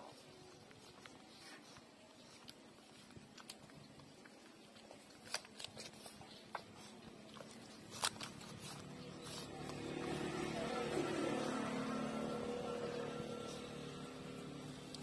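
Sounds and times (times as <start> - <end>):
puppies suckling clicks: 0.0 - 10.0, 14.6 - 15.0
low background hum: 0.0 - 15.0.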